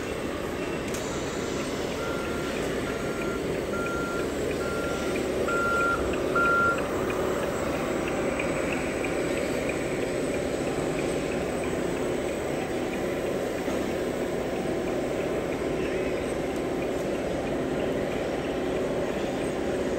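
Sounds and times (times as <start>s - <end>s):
electronic reversing beeper: 0.0s - 11.6s
steady background noise: 0.0s - 19.9s.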